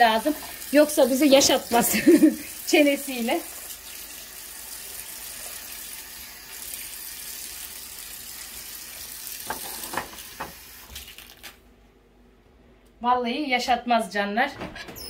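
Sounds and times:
tap running into sink: 0:09.4 - 0:11.0.

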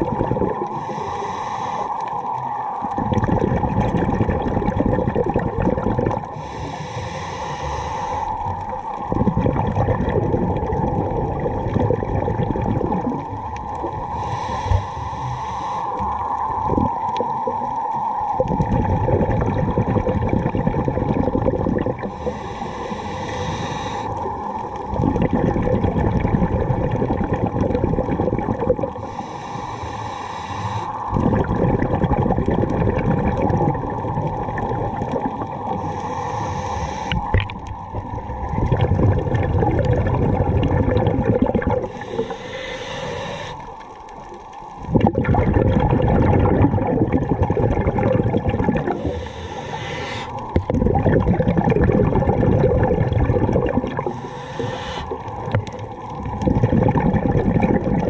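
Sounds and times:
rumbling exhaust bubbles: 0:00.0 - 0:00.8, 0:02.3 - 0:06.4, 0:08.4 - 0:15.3, 0:16.0 - 0:23.4, 0:24.0 - 0:29.2, 0:30.8 - 0:42.4, 0:43.6 - 0:49.8, 0:50.4 - 0:58.0
regulator hissing inhalation: 0:00.7 - 0:02.1, 0:06.4 - 0:08.4, 0:14.1 - 0:16.2, 0:22.0 - 0:24.2, 0:29.0 - 0:31.1, 0:35.7 - 0:37.4, 0:41.8 - 0:43.8, 0:48.9 - 0:50.6, 0:54.0 - 0:55.4.

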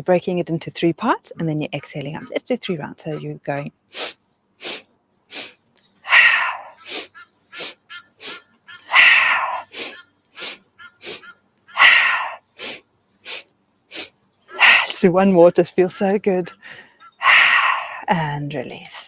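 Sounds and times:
woman breathing forcefully: 0:04.0 - 0:11.2, 0:11.8 - 0:14.9, 0:16.6 - 0:18.1.

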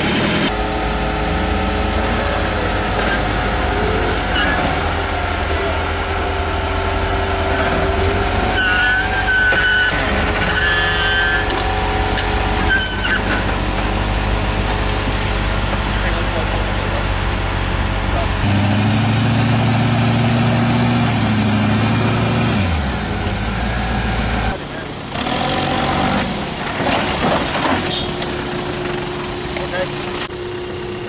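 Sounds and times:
vehicle engine running: 0:00.0 - 0:31.0
short high-pitched squeals: 0:04.2 - 0:04.8, 0:08.5 - 0:11.6, 0:12.6 - 0:13.4.

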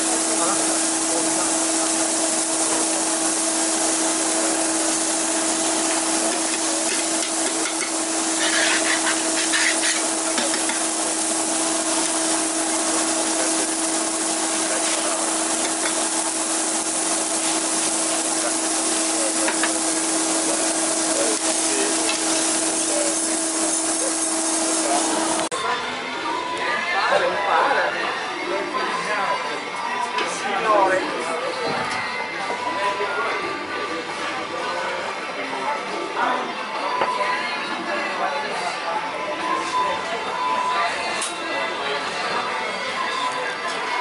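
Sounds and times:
pasta sizzling in a pan: 0:00.0 - 0:25.5.

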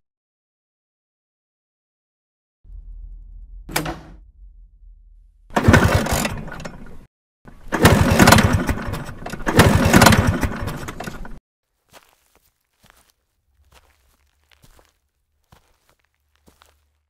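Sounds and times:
scooter engine turning over: 0:05.5 - 0:11.4.

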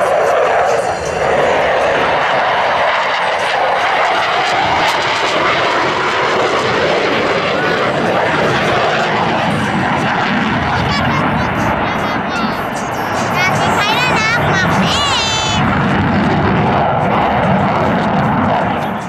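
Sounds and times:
fighter jet afterburner roar: 0:00.0 - 0:19.0.

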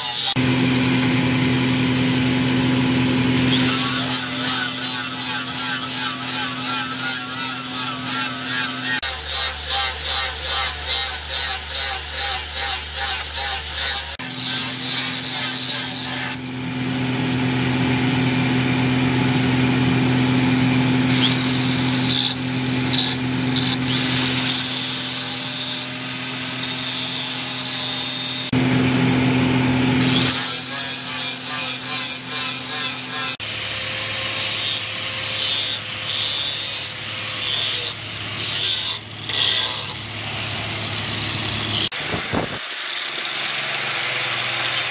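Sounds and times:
angle grinder motor hum: 0:00.0 - 0:44.9
disc grating against metal: 0:03.5 - 0:16.4, 0:21.1 - 0:28.5, 0:34.4 - 0:40.1.

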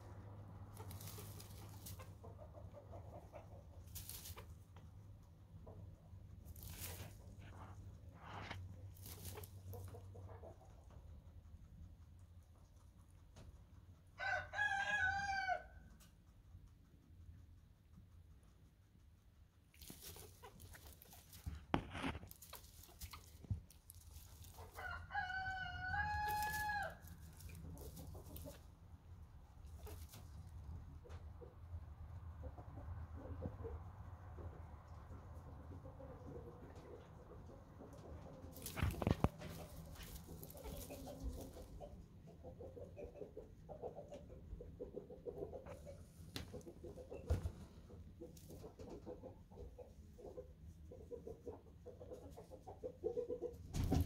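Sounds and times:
chickens clucking: 0:00.0 - 0:14.4, 0:15.1 - 0:54.0
rustling: 0:00.6 - 0:11.2, 0:19.5 - 0:30.9, 0:36.8 - 0:42.8
rooster crowing: 0:14.2 - 0:15.8, 0:24.8 - 0:27.0.

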